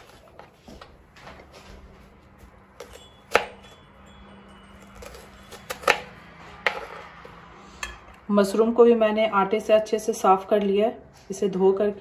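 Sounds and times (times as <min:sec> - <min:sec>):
knife striking chopping board: 0:02.8 - 0:03.8, 0:04.9 - 0:07.0.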